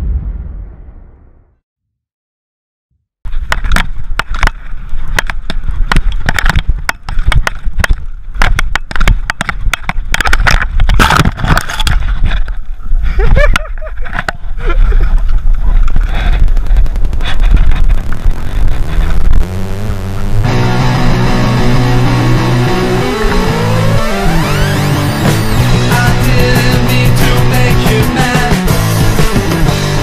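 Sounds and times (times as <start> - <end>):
bike clacking over rocks: 3.4 - 12.6
wind on microphone: 4.8 - 20.2.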